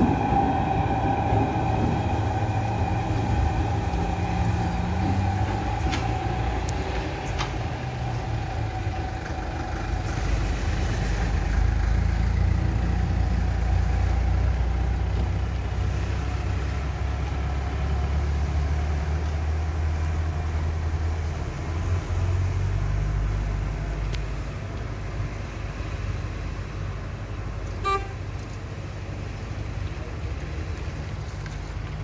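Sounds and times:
locomotive running hum: 0:00.0 - 0:32.0
locomotive horn toot: 0:27.8 - 0:28.3.

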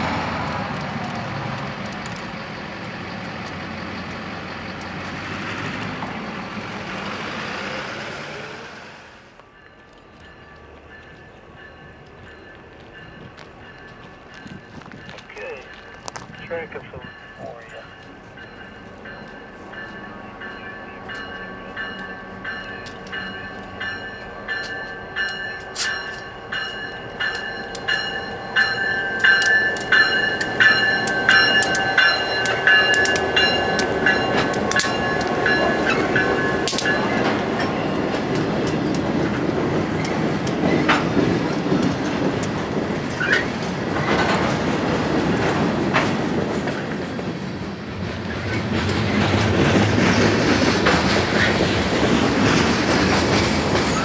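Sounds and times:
freight cars rumbling past: 0:00.0 - 0:09.3
diesel locomotive engines: 0:00.0 - 0:54.0
wheels clicking over rail joints: 0:21.1 - 0:47.4.

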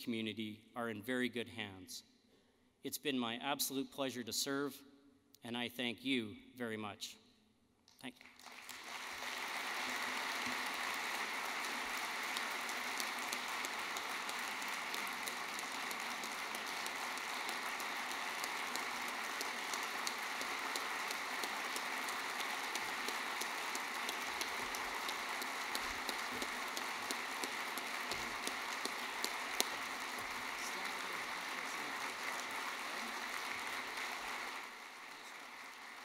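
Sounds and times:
audience applauding: 0:08.2 - 0:36.0.

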